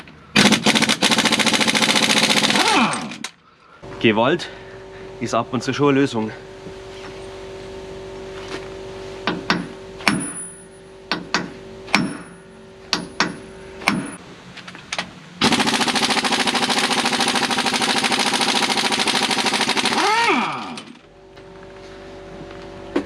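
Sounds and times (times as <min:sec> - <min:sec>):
hammer striking steel: 0:09.2 - 0:14.2
impact wrench hammering: 0:09.2 - 0:14.2.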